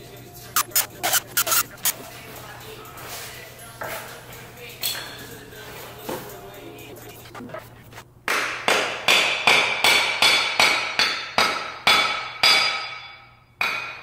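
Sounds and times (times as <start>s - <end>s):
metal-on-metal strikes ringing: 9.1s - 14.0s.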